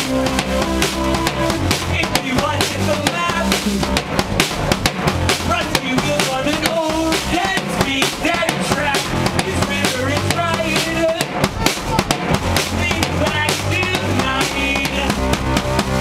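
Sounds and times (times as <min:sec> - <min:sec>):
keyboard melody: 0:00.0 - 0:07.3
drum kit beat: 0:00.0 - 0:16.0.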